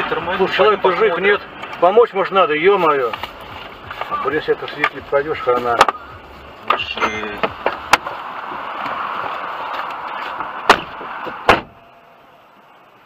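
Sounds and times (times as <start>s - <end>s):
steady rushing noise: 0.0s - 13.0s
car door knocks and thuds: 6.7s - 8.2s, 10.7s - 11.8s.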